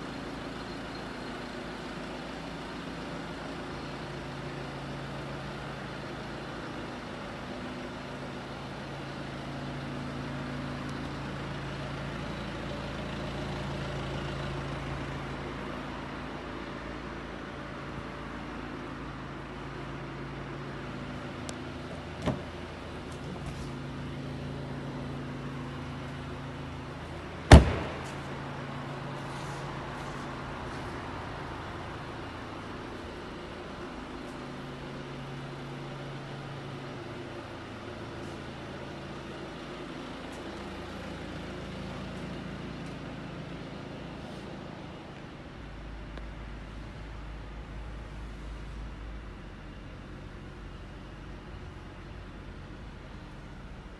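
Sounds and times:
car engine idling: 0.0 - 53.9
loud car door slam: 22.2 - 22.6, 27.5 - 28.4
car door shutting: 22.2 - 23.7, 27.5 - 28.4.

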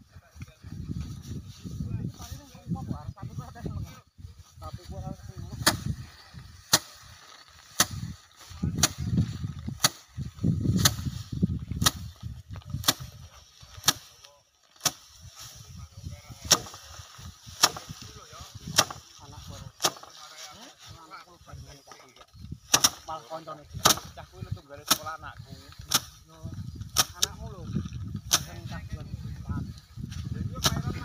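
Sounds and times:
straw rustling: 4.1 - 31.0
sheaves whacking wooden rack: 5.6 - 5.9, 6.6 - 7.0, 7.7 - 8.1, 9.7 - 10.1, 10.7 - 11.2, 12.8 - 13.1, 14.8 - 15.1, 16.4 - 16.9, 17.6 - 18.0, 18.6 - 19.1, 19.8 - 20.2, 22.7 - 23.2, 23.8 - 24.1, 27.0 - 27.3.

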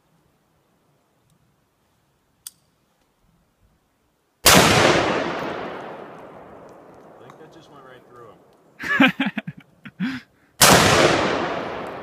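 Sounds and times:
loud rifle gunshot with echo: 4.4 - 6.4, 10.6 - 12.0.

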